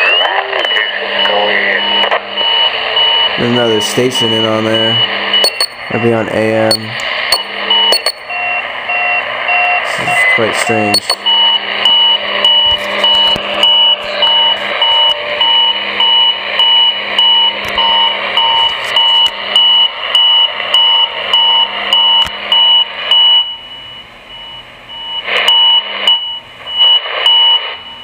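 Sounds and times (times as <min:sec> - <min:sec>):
radio hiss: 0:00.0 - 0:02.4, 0:03.3 - 0:08.2, 0:09.8 - 0:11.3
two-tone electronic beeping: 0:00.7 - 0:28.0.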